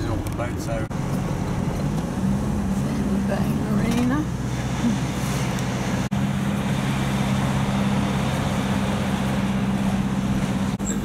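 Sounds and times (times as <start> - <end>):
tyre and road noise: 0.0 - 11.0
vehicle engine humming in cabin: 0.0 - 11.0.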